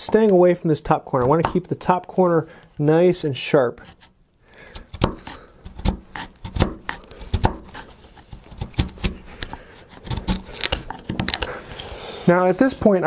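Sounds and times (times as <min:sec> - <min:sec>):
chisel cutting and scraping wood: 0:03.7 - 0:13.0.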